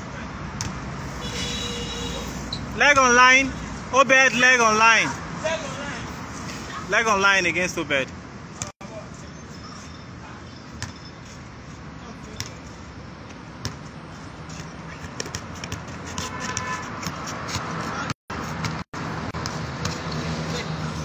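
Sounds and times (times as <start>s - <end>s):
basketball bouncing on hard court: 13.6s - 13.9s, 14.5s - 18.8s.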